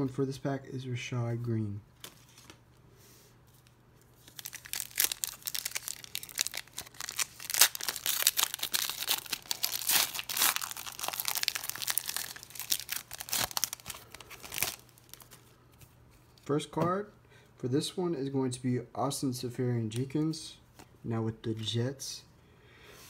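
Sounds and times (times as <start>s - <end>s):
foil wrapper crinkling and tearing: 4.2s - 15.4s.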